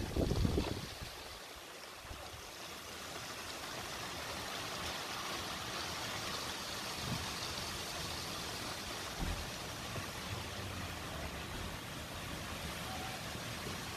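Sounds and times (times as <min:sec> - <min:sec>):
heavy rain falling: 0:00.0 - 0:13.9.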